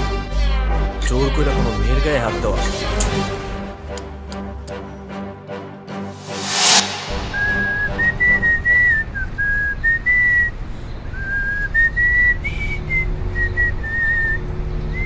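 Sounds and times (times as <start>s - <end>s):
whistled tune: 6.8s - 10.5s.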